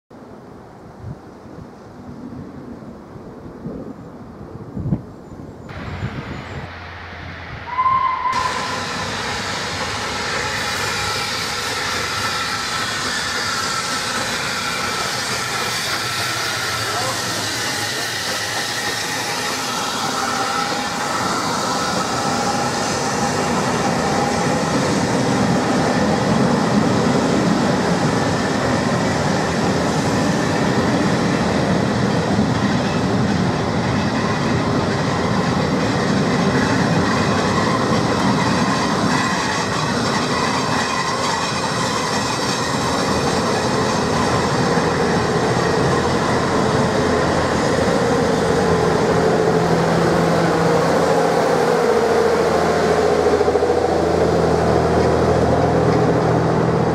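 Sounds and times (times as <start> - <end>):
train wheels clattering on rails: 8.2 - 56.9.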